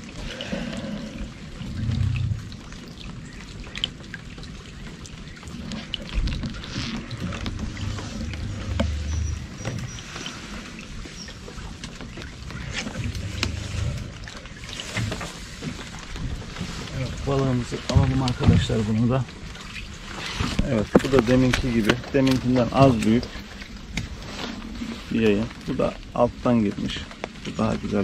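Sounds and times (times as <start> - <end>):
raindrops ticking: 0.0 - 24.1
water lapping against a hull: 0.0 - 28.0.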